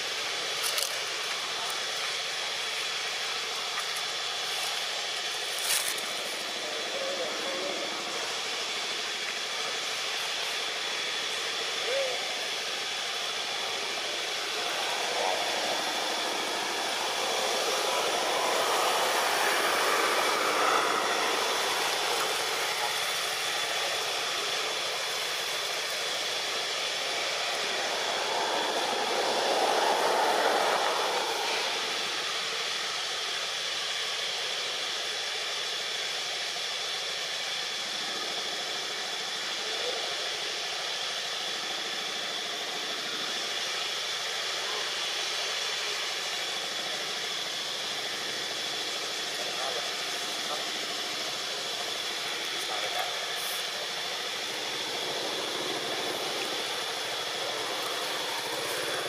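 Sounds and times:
high-pitched whine: 0.0 - 59.0
outdoor background hiss: 0.0 - 59.0
loud rush: 4.9 - 33.9, 49.1 - 59.0.

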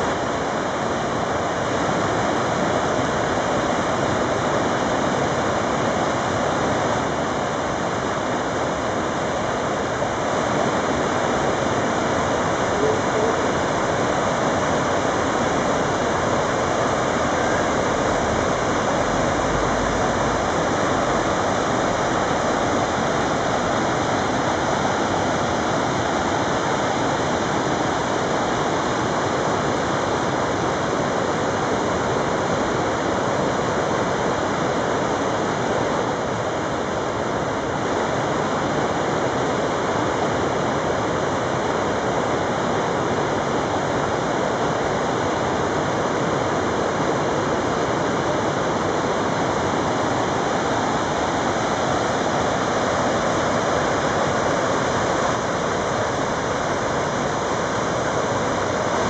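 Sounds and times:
water rushing over rocks: 0.0 - 59.0.

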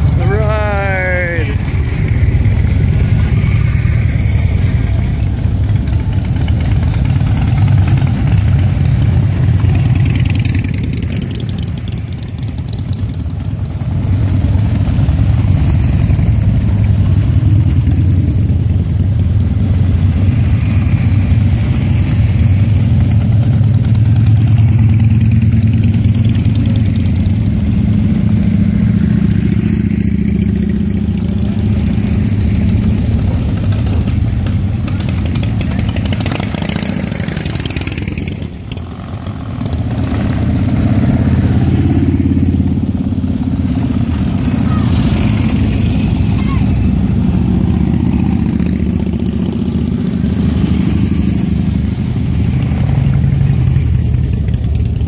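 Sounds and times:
motorcycles rumbling past slowly: 0.0 - 55.0.

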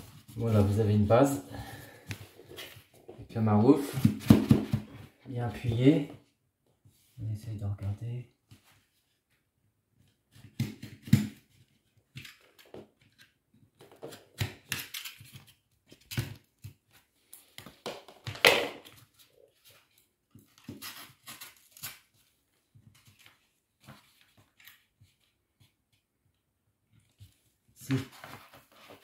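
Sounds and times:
wallpaper rustling and scraping: 0.0 - 3.2, 27.0 - 29.0.

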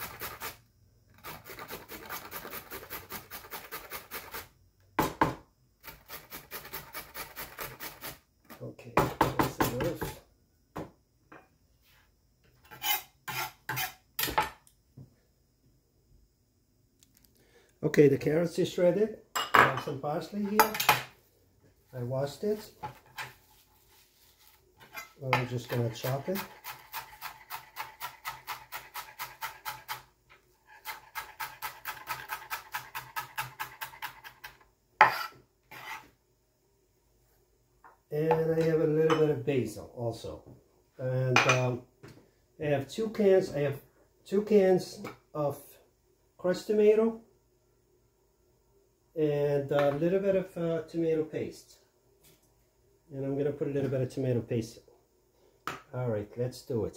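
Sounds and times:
knock: 5.0 - 5.4
knife scraping on cutting board: 12.6 - 14.0, 22.8 - 36.1
knife chopping on cutting board: 30.8 - 34.4.

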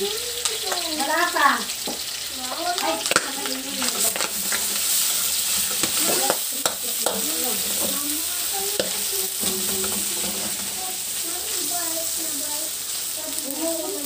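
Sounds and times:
meat sizzling in oil: 0.0 - 14.0
scrapes and knocks against wok: 8.7 - 10.8.

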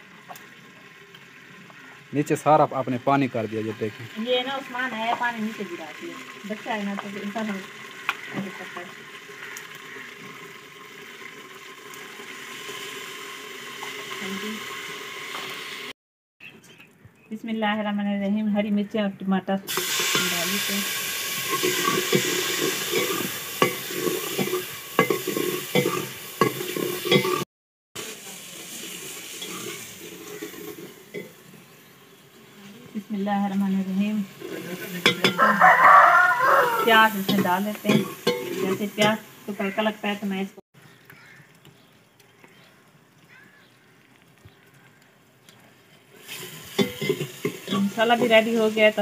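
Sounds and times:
vegetables sizzling in a pot: 0.0 - 16.0, 19.7 - 40.6, 41.2 - 49.0
ladle clinking against pot: 37.3 - 39.2, 46.8 - 47.9.

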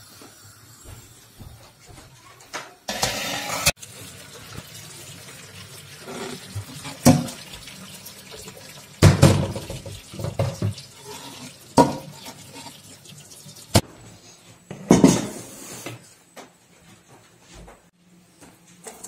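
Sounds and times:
metal pots clanking: 2.9 - 3.8, 9.0 - 12.7.

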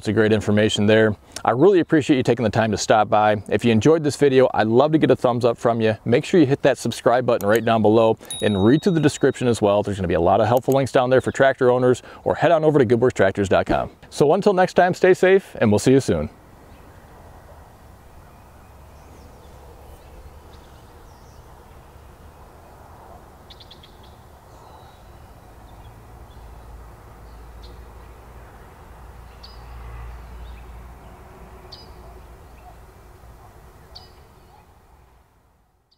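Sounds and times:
birds chirping: 7.4 - 12.2, 15.0 - 35.2.

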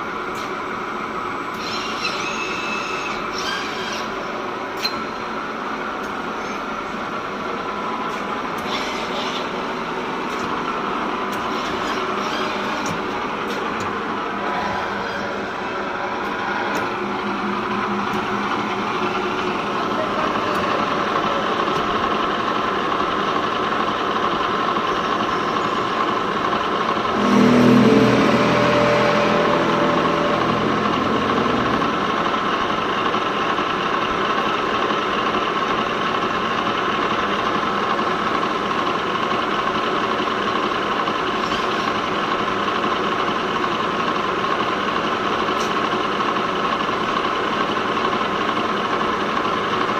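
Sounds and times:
machine humming and whining: 0.0 - 37.6.

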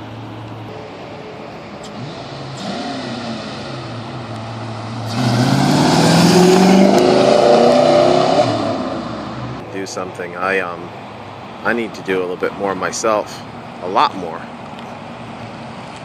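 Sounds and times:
car engine accelerating past: 1.8 - 9.6.

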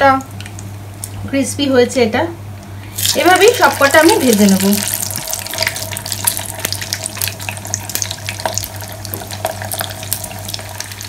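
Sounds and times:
chicken sizzling in hot oil: 2.9 - 11.0.

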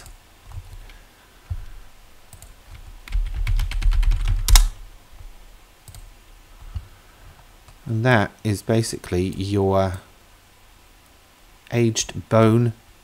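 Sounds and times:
typing on computer keyboard: 2.3 - 4.7.

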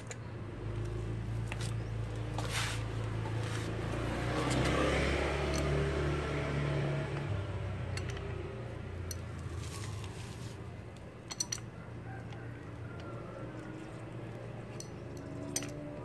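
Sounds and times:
wrench clinking on metal: 5.4 - 5.8, 7.9 - 9.5, 11.2 - 12.4, 14.4 - 16.0.

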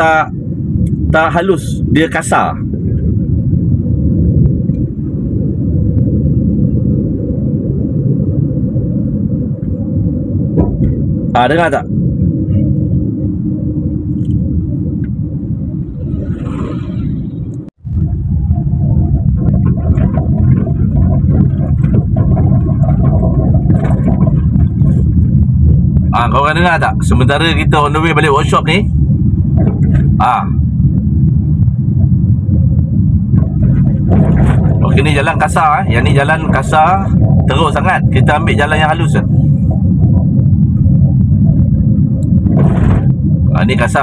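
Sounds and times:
road and tyre rumble: 0.0 - 44.0
suspension knocks and rattles: 19.2 - 25.7, 33.3 - 35.0.

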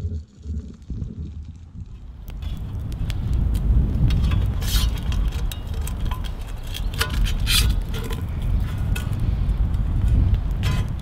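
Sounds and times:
wind rumble on microphone: 0.0 - 11.0.

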